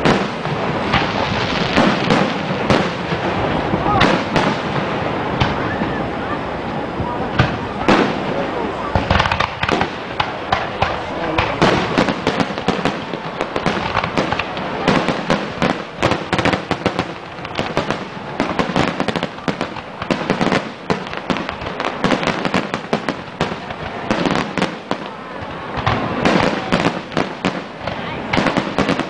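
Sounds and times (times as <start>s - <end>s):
fireworks bursting: 0.0s - 29.0s.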